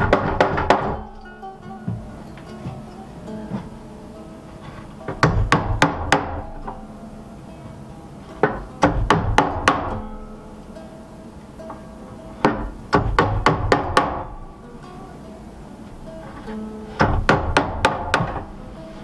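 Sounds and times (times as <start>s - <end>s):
hammer driving nails into wood: 0.0s - 1.1s, 4.6s - 6.7s, 8.4s - 10.0s, 12.4s - 14.4s, 16.2s - 18.5s.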